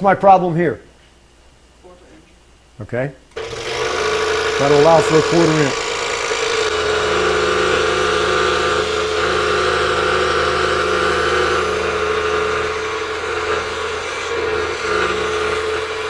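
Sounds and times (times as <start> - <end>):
scroll saw cutting: 3.3 - 16.0.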